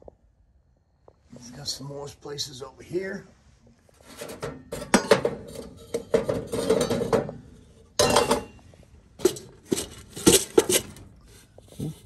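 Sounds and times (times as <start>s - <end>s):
tin cans clanking on metal shelf: 4.1s - 8.6s, 9.2s - 11.1s.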